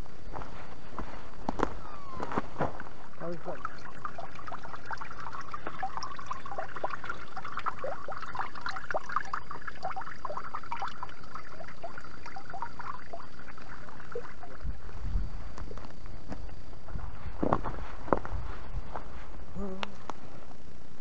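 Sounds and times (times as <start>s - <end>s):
brook trickling over stones: 1.8s - 16.7s.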